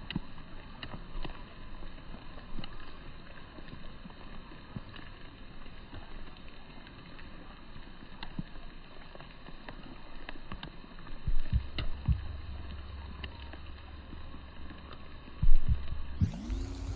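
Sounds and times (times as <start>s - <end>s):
light rain hiss: 0.0s - 16.9s
low rumble: 11.5s - 16.9s.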